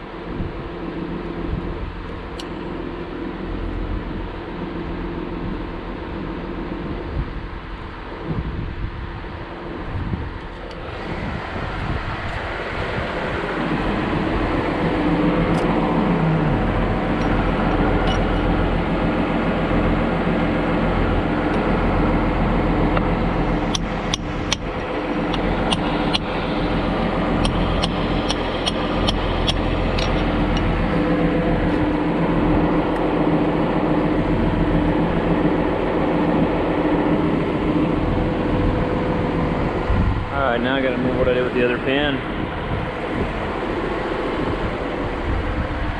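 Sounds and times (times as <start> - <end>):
diesel engine running: 0.0 - 45.9
sharp clicks: 23.7 - 26.4, 27.4 - 30.7.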